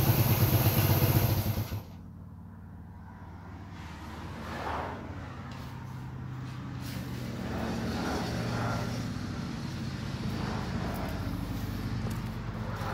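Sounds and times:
motorcycle engine idling: 0.0s - 2.5s.

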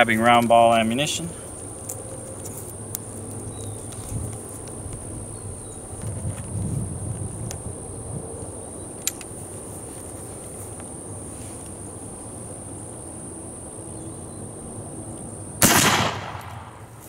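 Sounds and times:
wind rumbling on microphone: 3.5s - 9.3s.

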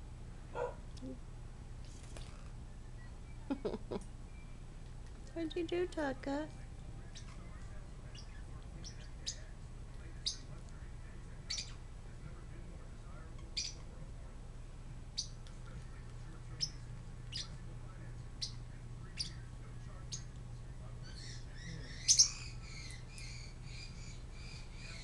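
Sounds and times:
parrotlets chirping: 7.1s - 7.4s, 8.1s - 10.6s, 11.4s - 11.8s, 13.3s - 13.9s, 15.2s - 15.4s, 16.5s - 17.6s, 18.4s - 20.3s, 21.0s - 25.0s.

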